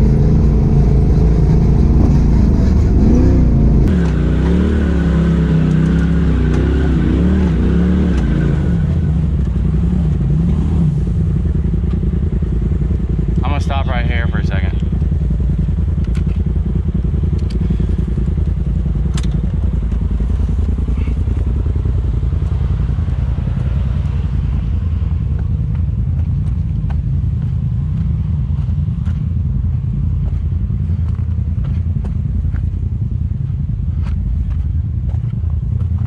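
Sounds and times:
engine idling: 0.0s - 4.0s, 8.7s - 36.0s
footsteps on dirt and loose rock: 25.2s - 36.0s.

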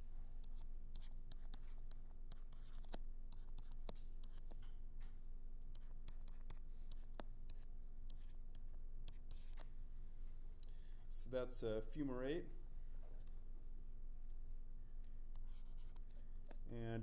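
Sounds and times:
stylus tapping and scratching: 0.4s - 9.7s, 15.3s - 16.7s.

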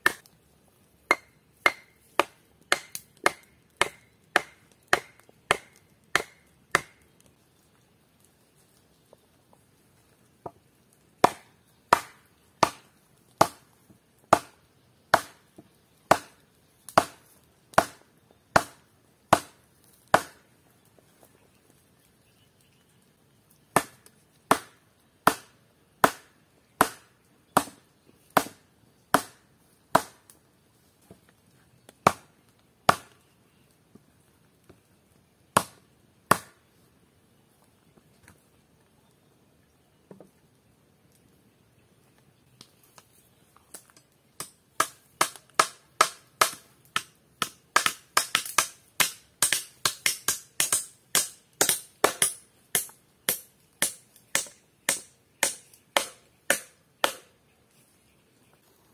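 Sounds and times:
wooden club pounding stakes: 1.1s - 7.0s, 11.2s - 12.8s, 14.3s - 15.4s, 16.1s - 16.4s, 17.0s - 17.2s, 17.8s - 18.0s, 18.6s - 20.4s, 23.8s - 27.8s, 28.4s - 30.2s, 32.9s - 33.2s, 44.4s - 57.3s.

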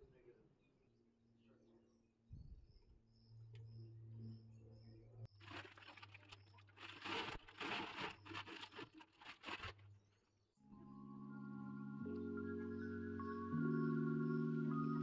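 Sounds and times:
plastic bag crinkling: 5.4s - 9.8s.

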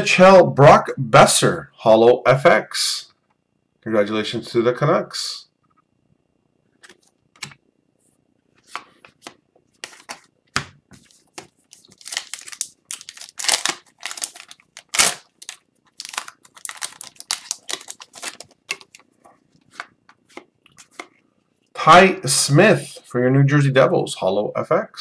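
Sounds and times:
cards being handled: 8.5s - 21.2s
foil wrapper tearing and crinkling: 11.7s - 19.0s.

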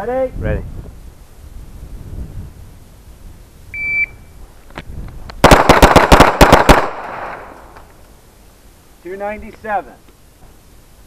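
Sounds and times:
shot timer beep: 3.8s - 4.2s
rapid pistol shots: 5.4s - 7.6s.

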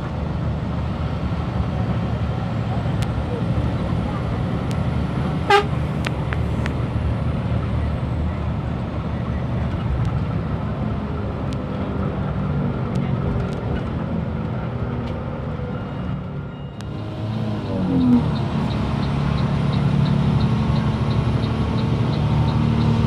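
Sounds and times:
bus diesel engine running: 0.0s - 23.0s
road noise: 0.0s - 23.0s.

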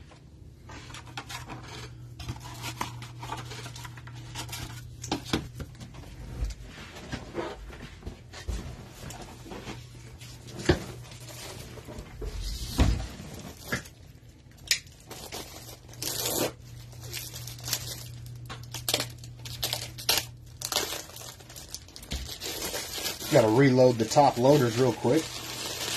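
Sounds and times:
low steady hum: 0.0s - 25.9s
plastic wrapper crinkling and tearing: 0.9s - 5.2s, 13.3s - 25.9s.

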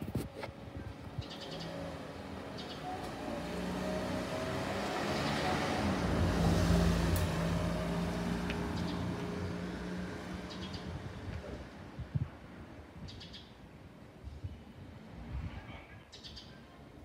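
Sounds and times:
vehicle engine passing by: 1.3s - 11.8s.

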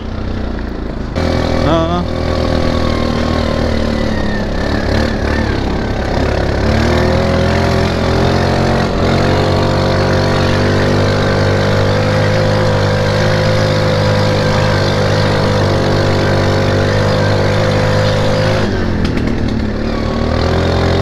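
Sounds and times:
atv engine running: 0.0s - 21.0s.

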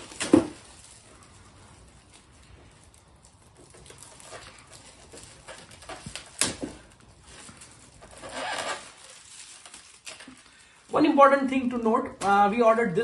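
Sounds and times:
sharp crack: 0.0s - 1.0s, 3.6s - 7.1s
plastic film crinkling: 0.0s - 13.0s.

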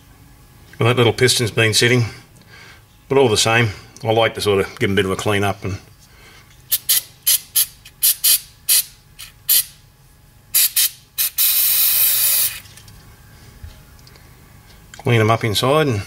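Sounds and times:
aerosol spray squirts: 10.6s - 12.6s.

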